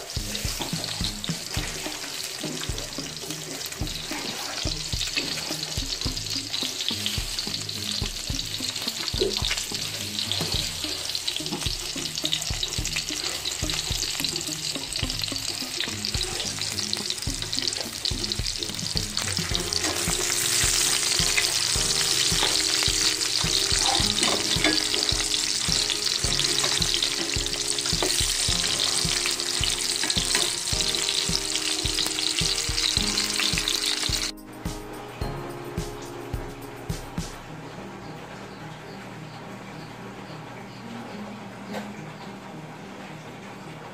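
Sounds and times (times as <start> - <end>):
hot dogs sizzling in oil: 0.0 - 36.2.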